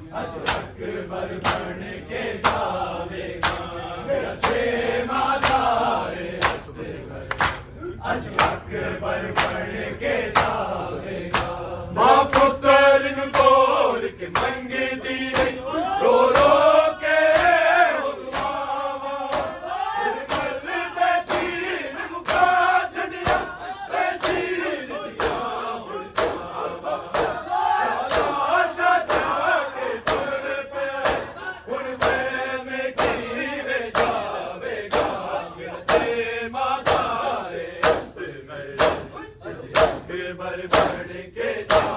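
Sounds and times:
men chanting together: 0.0s - 41.9s
chest-beating slaps: 0.4s - 0.8s, 1.4s - 1.8s, 3.4s - 3.7s, 5.4s - 5.7s, 6.4s - 6.7s, 7.3s - 8.7s, 11.3s - 11.6s, 13.3s - 14.6s, 15.2s - 15.6s, 16.3s - 16.7s, 17.3s - 17.6s, 18.3s - 18.6s, 19.3s - 19.6s, 20.2s - 21.6s, 23.2s - 23.6s, 24.2s - 24.5s, 25.1s - 25.5s, 26.1s - 28.4s, 29.0s - 29.4s, 30.0s - 30.4s, 31.0s - 32.3s, 33.0s - 33.3s, 33.9s - 34.3s, 34.9s - 36.2s, 36.8s - 37.2s, 37.8s - 41.1s, 41.7s - 41.9s.

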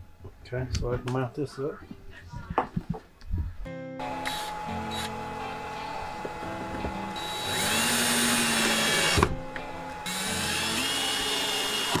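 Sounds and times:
cordless drill driving screws: 4.1s - 5.2s, 7.0s - 9.3s, 10.0s - 12.0s.

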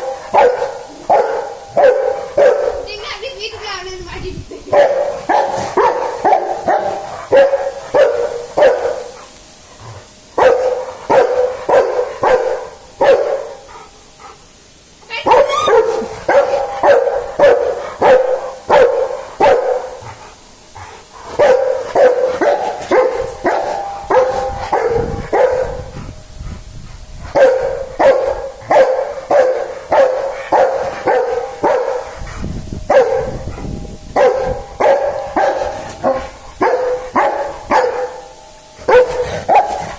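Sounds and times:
dog barking in rapid runs: 0.0s - 2.9s, 4.7s - 9.2s, 10.4s - 13.6s, 15.2s - 20.0s, 21.4s - 26.0s, 27.4s - 32.0s, 32.9s - 38.1s, 38.9s - 39.9s.

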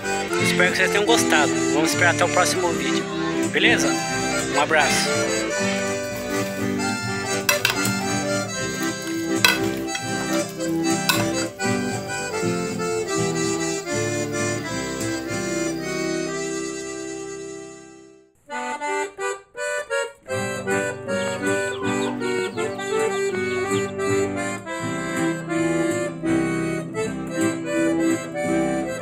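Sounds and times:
background music with steady beat: 0.0s - 17.1s.

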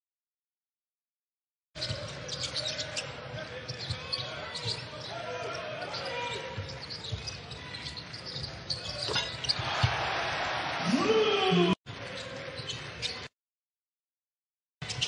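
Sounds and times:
arena crowd noise: 1.8s - 13.3s.

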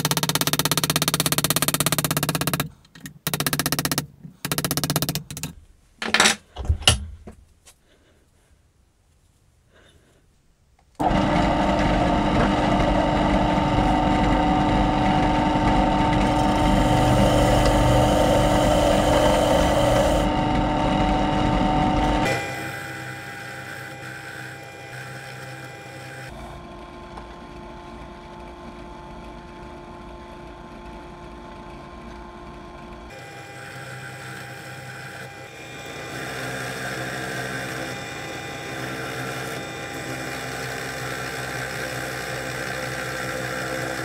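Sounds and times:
drill press motor hum: 11.0s - 44.0s.

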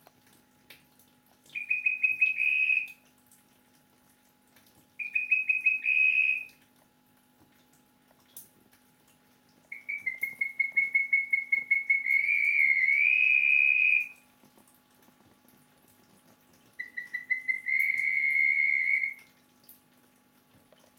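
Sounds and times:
toad whistling trill call: 1.6s - 3.0s, 5.0s - 6.6s, 9.7s - 14.2s, 16.8s - 19.3s.

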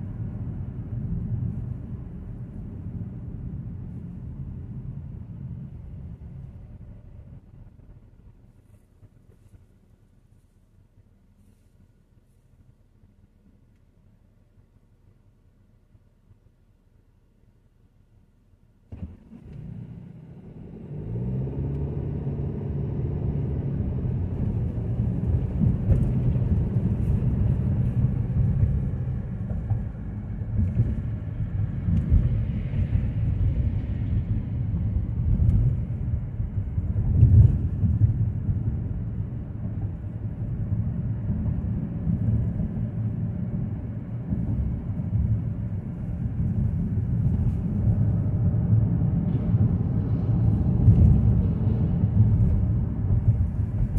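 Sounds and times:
tyres on road: 0.0s - 53.9s
car engine accelerating: 18.9s - 53.9s.

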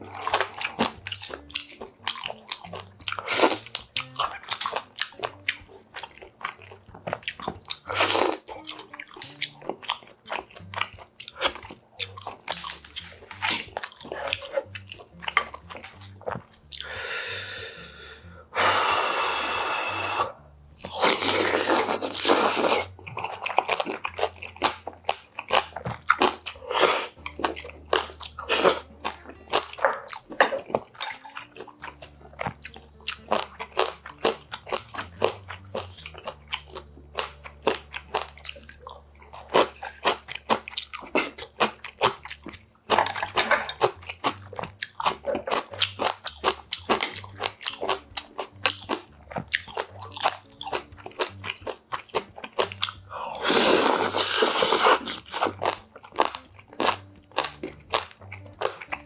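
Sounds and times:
man chewing: 0.0s - 59.0s
slurping broth: 2.7s - 5.0s, 7.8s - 8.5s, 12.5s - 32.5s, 52.2s - 58.1s.

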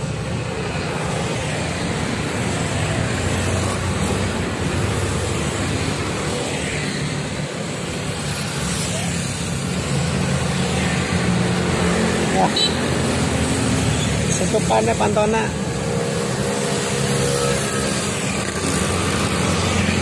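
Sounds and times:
scooters and motorcycles passing: 0.0s - 20.0s.

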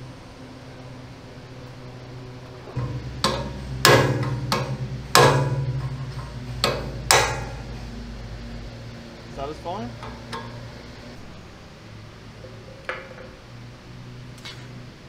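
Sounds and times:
hammer striking metal: 2.7s - 8.3s.

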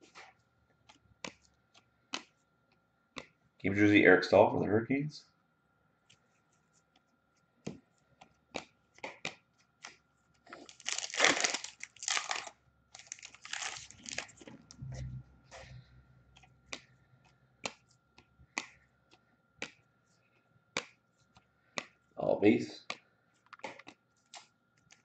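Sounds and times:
foil wrapper tearing and crinkling: 10.5s - 14.5s.

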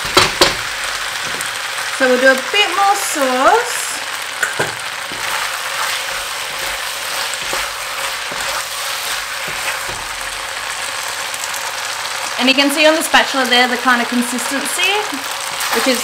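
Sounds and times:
spatula knocking and scraping wok: 0.0s - 1.9s, 4.3s - 11.1s, 15.5s - 16.0s
food sizzling in a wok: 0.0s - 16.0s.

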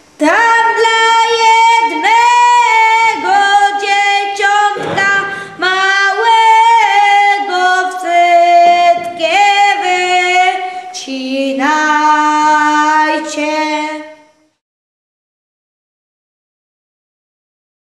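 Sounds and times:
women and boy singing: 0.2s - 14.3s.

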